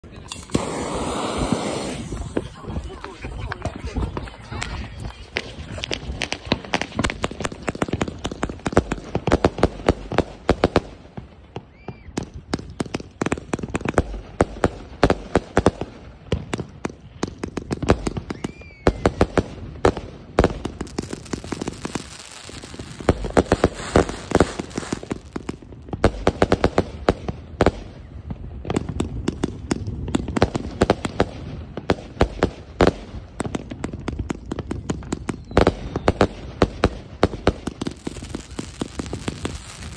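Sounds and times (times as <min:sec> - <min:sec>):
fireworks launching and popping: 0:00.0 - 0:39.9
firework hiss: 0:00.3 - 0:03.1, 0:20.7 - 0:26.2, 0:37.6 - 0:39.9.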